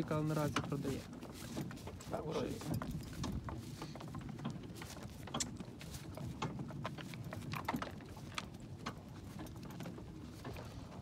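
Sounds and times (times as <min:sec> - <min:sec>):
cart and harness clicks and knocks: 0:00.0 - 0:11.0
cart wheels rumbling: 0:00.0 - 0:11.0
horse hoofbeats: 0:00.0 - 0:11.0.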